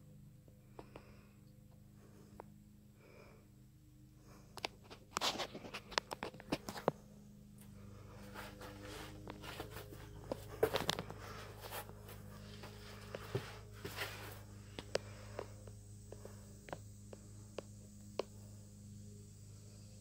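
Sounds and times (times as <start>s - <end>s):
steady low hum: 0.0s - 20.0s
scuffing and shuffling: 7.6s - 15.6s.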